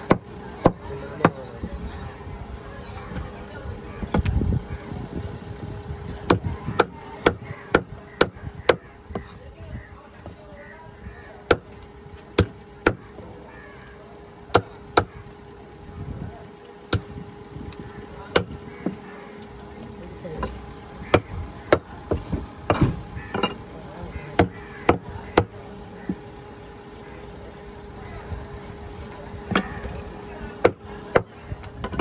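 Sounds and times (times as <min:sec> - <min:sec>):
cleaver chopping on wooden block: 0:11.5 - 0:11.7, 0:12.4 - 0:13.0, 0:18.3 - 0:19.0, 0:24.4 - 0:25.5.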